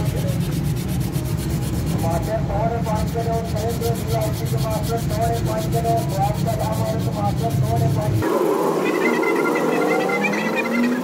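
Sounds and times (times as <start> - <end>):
file rasping on wood: 0.0 - 8.3
wavering pitched sound: 6.9 - 11.0.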